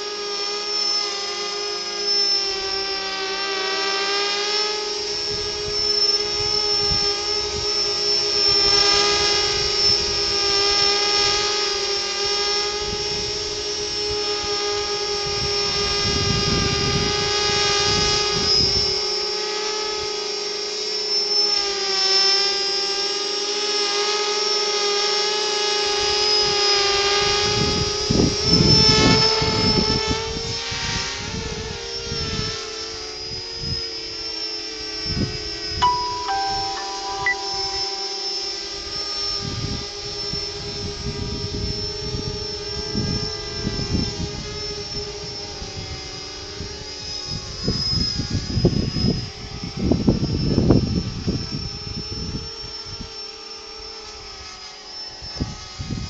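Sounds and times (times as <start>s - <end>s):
quadcopter motors whining: 0.0s - 35.2s.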